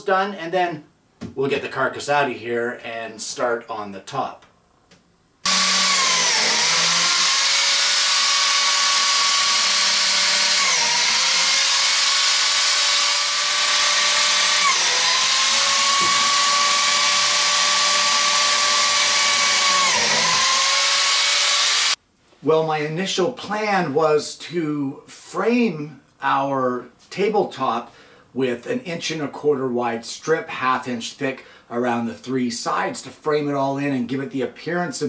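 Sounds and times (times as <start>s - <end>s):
blade cutting wood: 5.4s - 22.0s
power tool motor whining: 5.5s - 22.0s.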